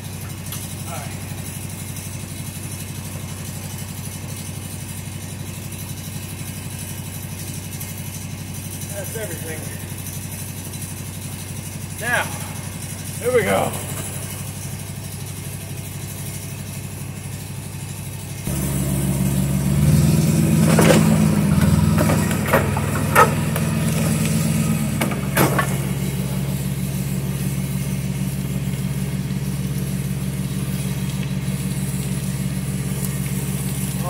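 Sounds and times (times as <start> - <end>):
motor running: 8.9 - 34.0.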